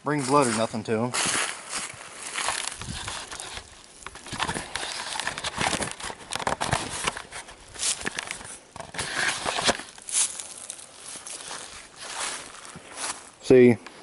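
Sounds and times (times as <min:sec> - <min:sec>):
dry leaves crackling: 0:00.2 - 0:13.4.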